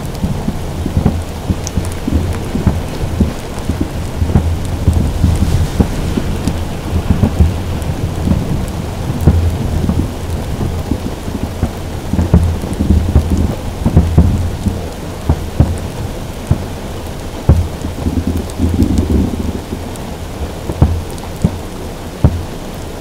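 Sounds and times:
heavy rain on a car roof: 0.0s - 23.0s
low booms and rumbles: 0.0s - 23.0s.

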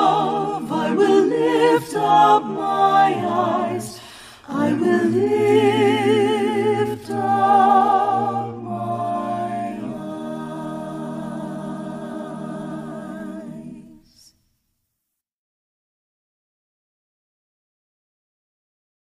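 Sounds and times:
a cappella voices singing: 0.0s - 14.4s.

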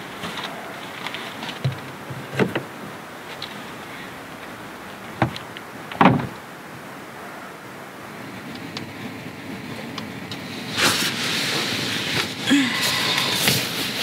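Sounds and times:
light knocks and bumps: 0.2s - 2.7s, 5.0s - 6.4s.

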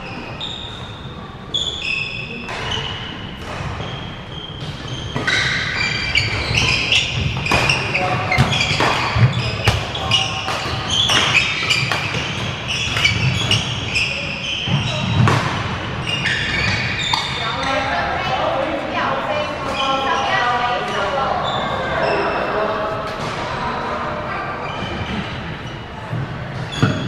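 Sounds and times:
shoes squeaking: 0.0s - 18.0s, 19.4s - 23.2s, 24.4s - 27.0s
rackets hitting shuttlecock: 4.6s - 14.0s, 14.7s - 17.4s.

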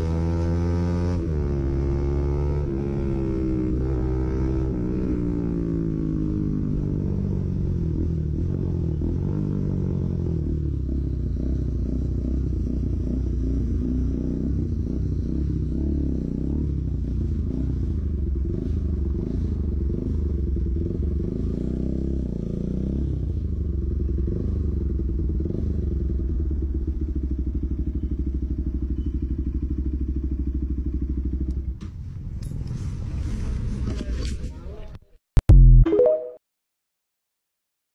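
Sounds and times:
motorcycle engine revving: 0.0s - 32.3s.

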